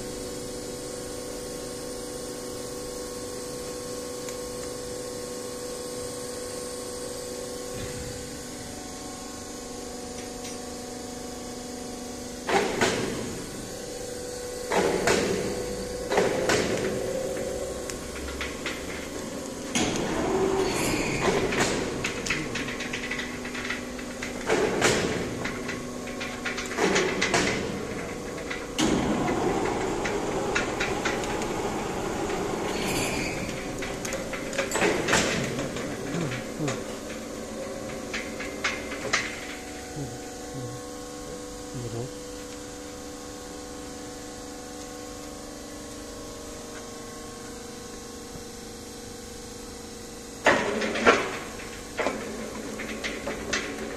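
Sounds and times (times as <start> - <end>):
engine and hydraulics hum: 0.0 - 53.9.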